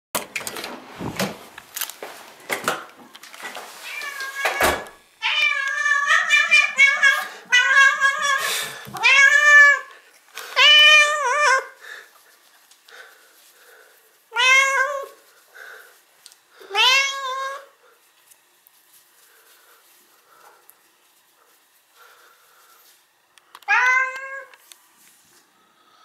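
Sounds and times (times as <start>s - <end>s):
cat meowing: 3.8s - 9.9s, 14.3s - 15.2s, 16.7s - 17.7s, 23.7s - 24.5s.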